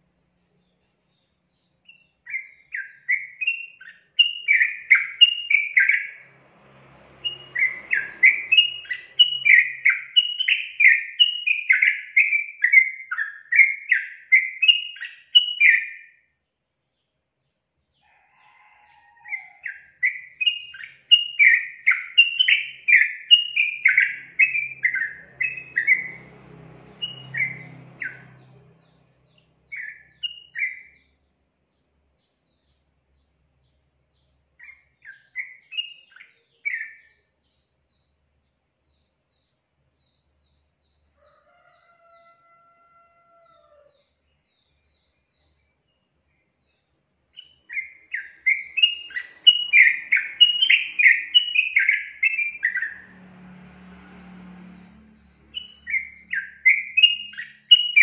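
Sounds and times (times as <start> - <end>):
bird singing chattering notes: 47.4 - 52.9.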